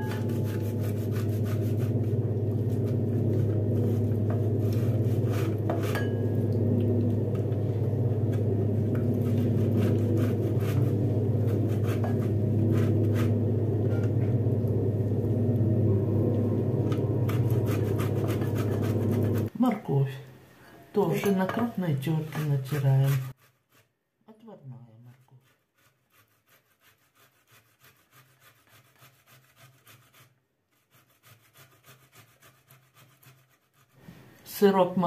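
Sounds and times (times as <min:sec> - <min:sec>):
metal grater scraping glass bowl: 0:00.0 - 0:02.0, 0:03.3 - 0:06.2, 0:08.9 - 0:14.1, 0:17.3 - 0:19.5, 0:22.1 - 0:23.8
low electrical hum: 0:00.0 - 0:23.4.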